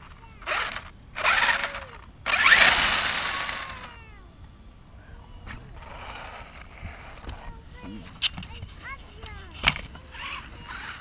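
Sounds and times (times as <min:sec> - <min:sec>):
toy truck motor whining: 0:00.0 - 0:04.2, 0:05.8 - 0:07.5, 0:10.1 - 0:11.0.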